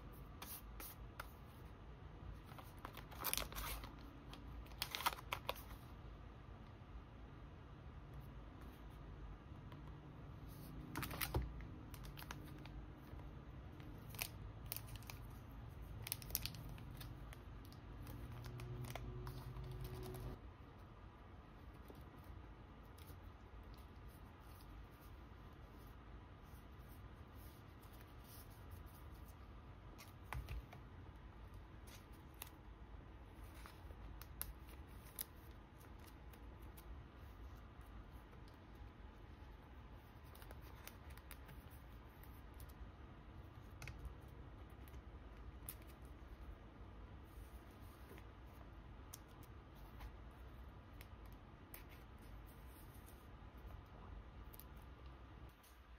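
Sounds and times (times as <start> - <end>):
low steady hum: 0.0 - 55.9
plastic sleeves crinkling: 2.4 - 5.8, 13.8 - 20.4
packaging crinkling and rustling: 2.5 - 4.0.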